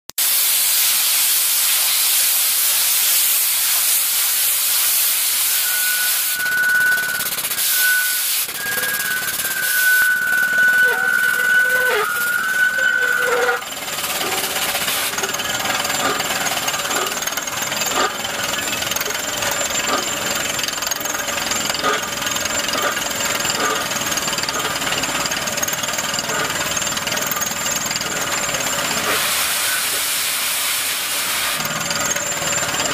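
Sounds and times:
compressed air hissing: 0.2s - 13.6s, 14.2s - 15.3s, 29.0s - 31.6s
drill rig hammering into rock: 13.1s - 30.0s.

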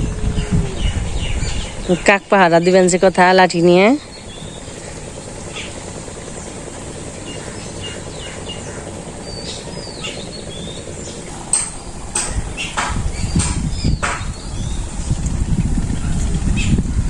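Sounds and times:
rural background hiss: 0.0s - 13.2s
low rumble: 0.0s - 17.0s
sharp knocks: 11.5s - 14.4s.

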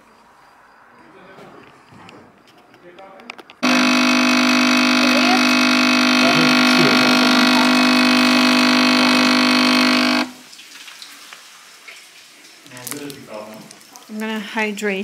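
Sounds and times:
espresso machine pump humming: 3.6s - 10.4s.

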